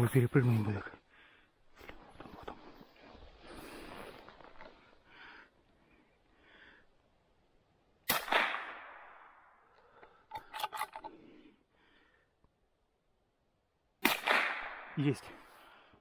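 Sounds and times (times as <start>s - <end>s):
rifle shot with echo: 8.1s - 9.6s, 14.0s - 15.1s.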